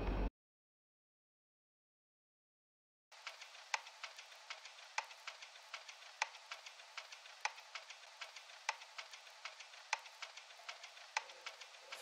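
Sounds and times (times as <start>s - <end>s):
hiss: 3.2s - 12.0s.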